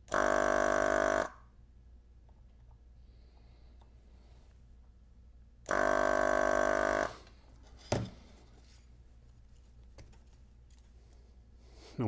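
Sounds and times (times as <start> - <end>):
vacuum pump buzzing: 0.0 - 1.4, 5.7 - 7.4.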